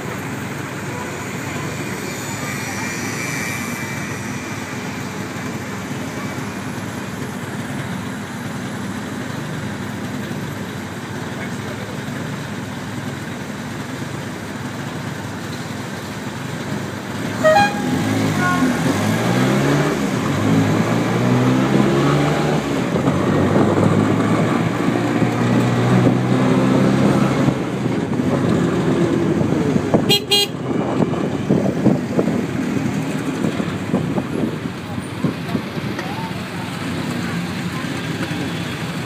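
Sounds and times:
city traffic: 0.0 - 39.0
horn toot: 17.3 - 19.3, 30.1 - 30.6.

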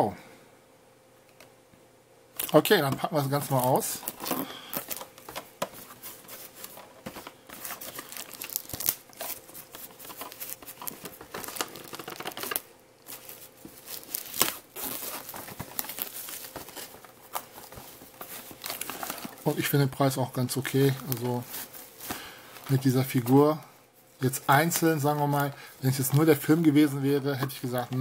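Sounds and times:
plastic shrink-wrap tearing: 2.4 - 2.6, 7.6 - 19.7.

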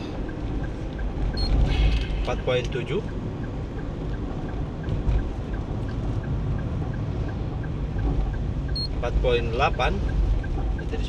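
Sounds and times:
road and engine rumble in car: 0.0 - 11.0
faint regular ticking: 2.3 - 11.0.

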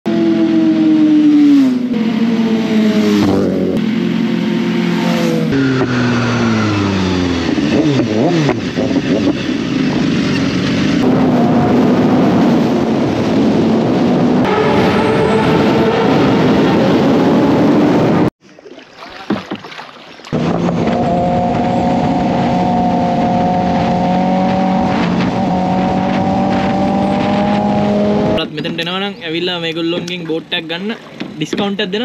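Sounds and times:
motorcycle engine revving: 0.1 - 18.3, 20.4 - 28.6
road noise rushing: 0.1 - 18.3, 20.3 - 32.0.

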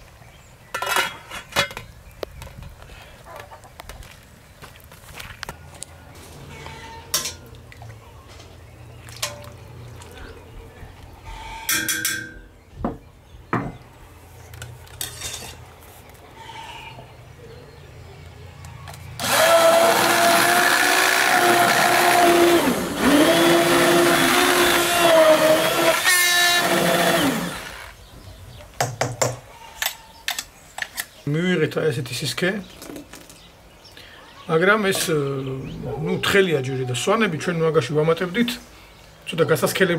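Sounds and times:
electric hand blender running: 19.2 - 27.9.

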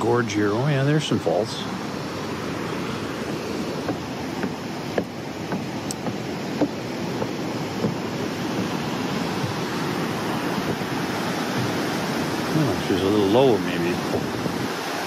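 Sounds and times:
waterfall and river rapids rushing: 0.0 - 15.0
footsteps on wooden stairs: 2.8 - 12.5.

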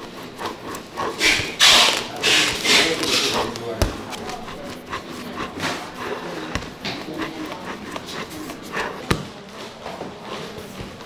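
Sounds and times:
heavy thuds: 0.9 - 11.0.

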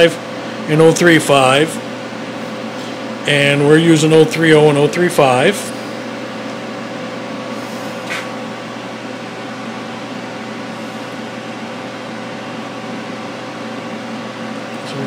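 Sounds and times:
electric fan humming: 0.0 - 15.0.

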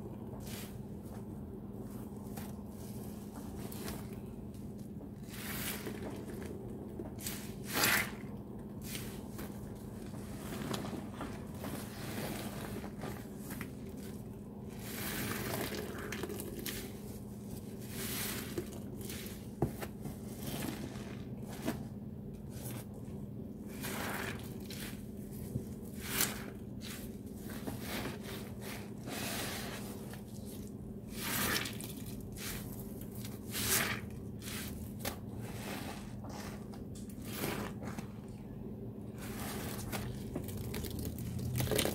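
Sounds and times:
sponges squelching: 1.8 - 21.8, 23.7 - 38.2, 39.2 - 41.9.

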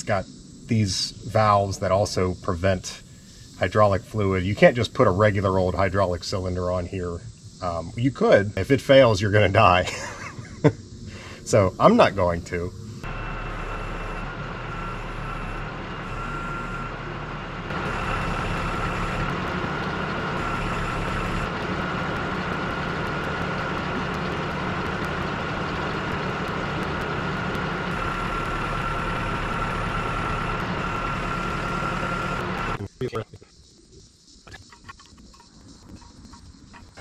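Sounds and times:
thin steady whine: 0.0 - 37.0
machine engine running under load: 12.7 - 32.8.

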